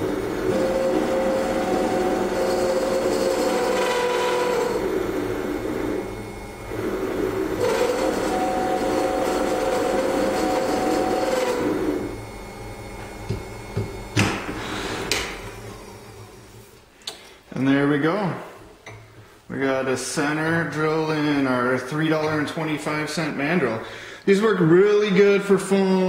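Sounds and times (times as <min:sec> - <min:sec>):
lathe drilling into steel rod: 0:00.0 - 0:13.8
lathe hum: 0:00.0 - 0:16.9.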